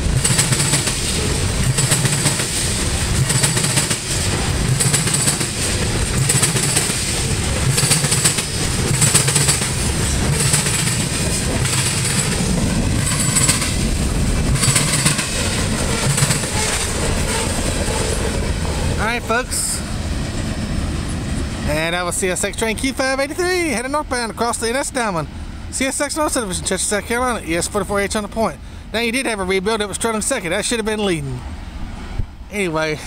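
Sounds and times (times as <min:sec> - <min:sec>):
train wheels clattering over crossing: 0:00.0 - 0:19.1.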